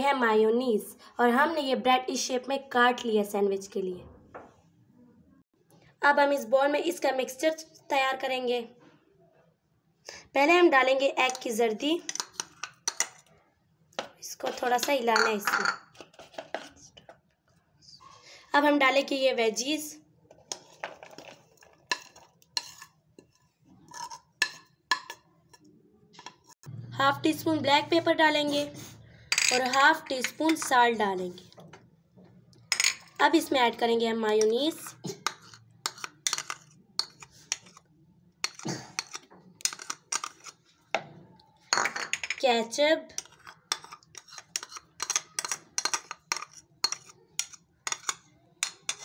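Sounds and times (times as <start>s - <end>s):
spoon clinking on ceramic bowls: 14.8s - 16.0s, 29.3s - 30.7s, 34.4s - 37.8s, 43.1s - 49.0s
cutlery scraping a plate: 20.5s - 26.6s, 34.8s - 40.7s, 43.1s - 49.0s.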